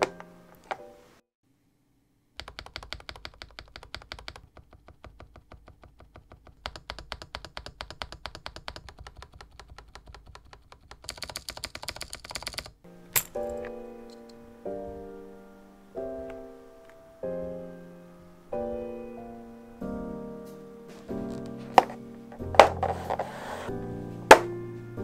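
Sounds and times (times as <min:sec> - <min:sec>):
mechanical keyboard typing: 0:02.4 - 0:12.8.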